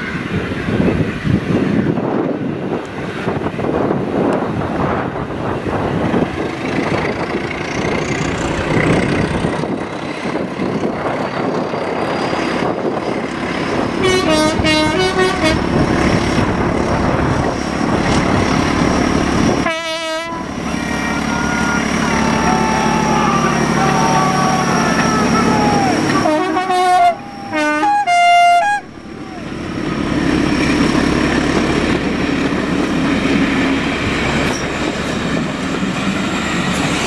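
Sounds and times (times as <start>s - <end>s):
diesel locomotive passing: 0.0s - 37.0s
train horn toots: 14.0s - 15.8s, 19.6s - 29.1s.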